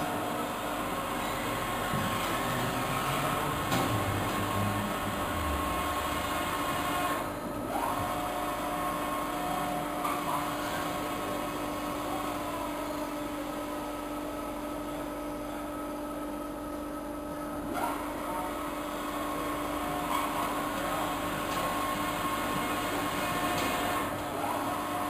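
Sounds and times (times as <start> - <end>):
industrial shredder running: 1.0 - 7.4.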